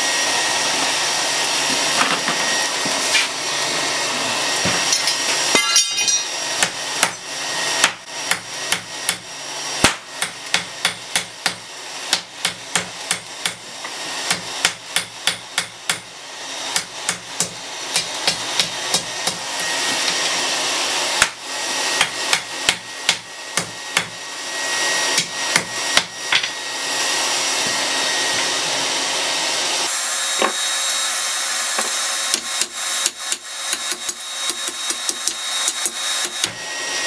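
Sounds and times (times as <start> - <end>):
hammer striking metal on anvil: 7.8 - 13.6, 14.3 - 16.1.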